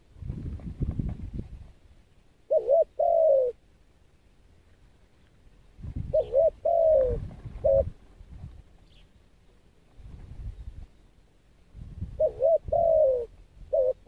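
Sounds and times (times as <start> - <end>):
dove cooing: 2.5 - 3.6, 6.0 - 8.0, 12.1 - 14.0.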